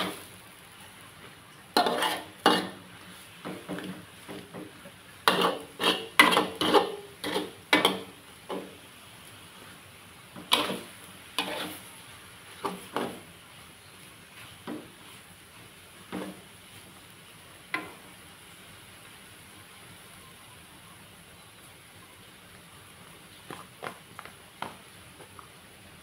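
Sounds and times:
metal spatula scraping a wok: 1.8s - 4.6s, 5.2s - 8.7s, 10.4s - 12.0s, 12.6s - 13.3s.

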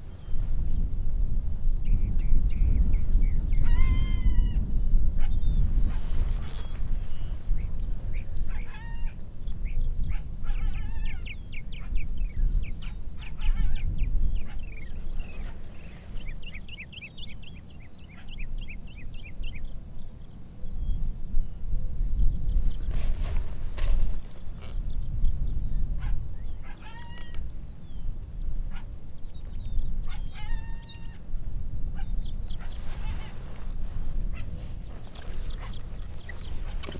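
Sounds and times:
low wind rumble: 0.0s - 36.9s
coyotes yipping and howling: 3.4s - 19.6s, 25.8s - 27.6s, 28.3s - 36.9s
high-pitched animal yelps: 8.5s - 9.2s, 10.2s - 11.2s, 26.0s - 27.4s, 30.1s - 31.2s
steady low rumble: 27.4s - 36.9s.

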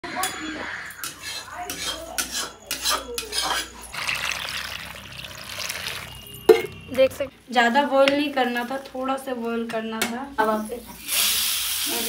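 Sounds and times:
metal utensils clinking: 1.0s - 6.9s
water poured into a steel bowl: 3.9s - 6.6s.

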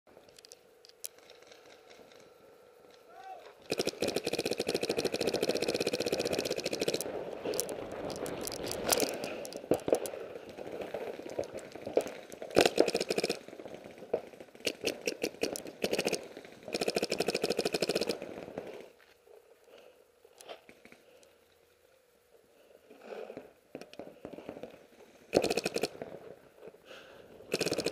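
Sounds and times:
paintball markers firing: 3.6s - 13.5s, 14.2s - 18.2s, 25.4s - 26.0s, 27.5s - 27.9s.

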